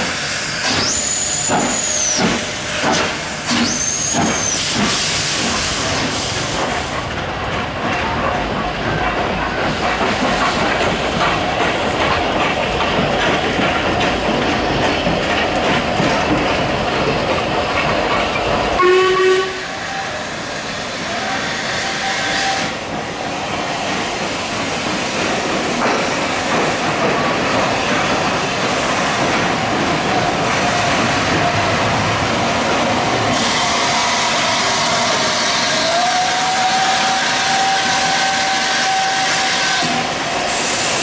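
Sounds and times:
steam locomotive moving slowly: 0.0s - 41.0s
train carriages rumbling over rails: 0.0s - 41.0s
train whistle blast: 18.8s - 20.5s, 21.1s - 22.8s, 33.4s - 40.8s.

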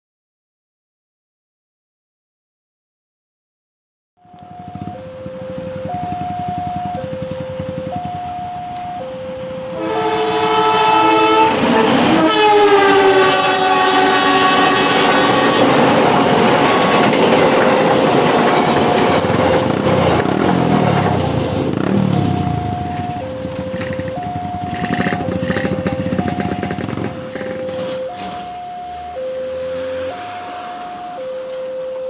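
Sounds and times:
two-tone crossing alarm: 4.2s - 32.0s
train horn: 9.6s - 18.1s
train wheels rolling past: 9.7s - 28.6s.

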